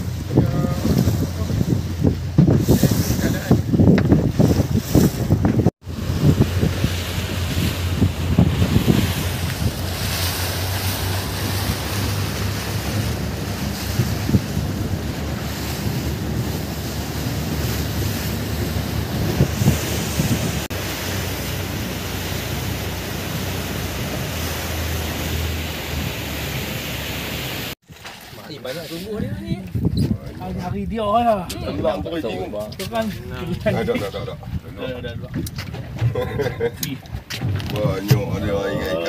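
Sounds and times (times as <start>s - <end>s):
boat engine drone: 0.0s - 3.2s, 5.8s - 27.8s
wind buffeting microphone: 0.0s - 26.8s, 29.0s - 39.0s
water rushing along hull: 0.0s - 39.0s.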